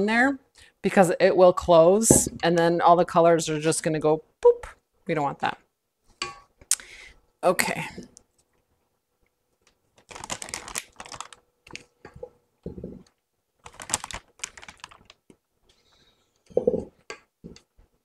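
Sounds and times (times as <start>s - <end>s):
plastic piping bag crinkling: 9.9s - 11.9s, 13.6s - 15.3s.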